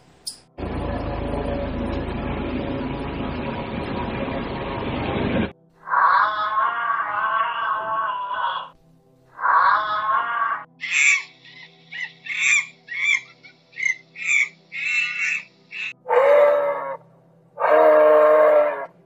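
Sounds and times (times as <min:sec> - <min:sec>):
monkey calls: 0:09.4 - 0:16.9.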